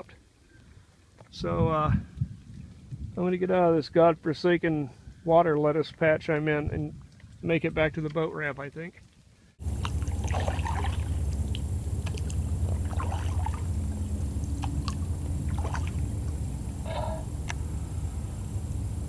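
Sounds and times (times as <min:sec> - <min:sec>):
paddle strokes in water: 0:09.6 - 0:17.6
steady low rumble: 0:09.6 - 0:19.0.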